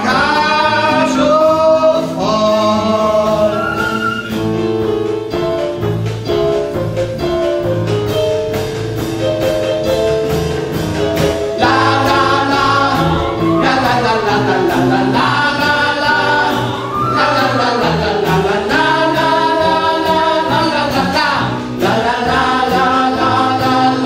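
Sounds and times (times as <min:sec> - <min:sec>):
people singing: 0:00.0 - 0:04.3, 0:11.6 - 0:24.0
band playing upbeat show tune: 0:00.0 - 0:24.0.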